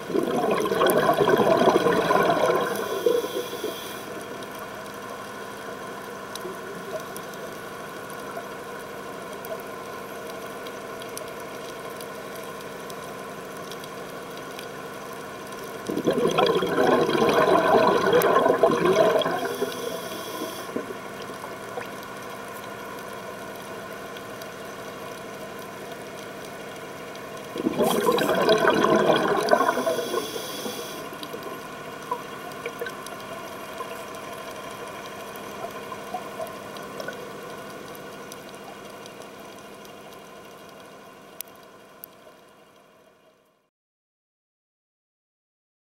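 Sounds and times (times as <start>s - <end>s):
diver exhaling bubbles: 0.0s - 4.0s, 15.9s - 21.0s, 27.5s - 31.6s
boat engine humming underwater: 0.0s - 43.2s.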